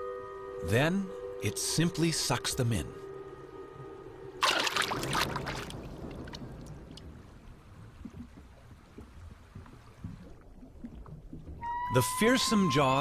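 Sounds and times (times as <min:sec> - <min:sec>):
low underwater rumble: 0:03.6 - 0:12.8
watery rushing gulp: 0:04.4 - 0:06.9.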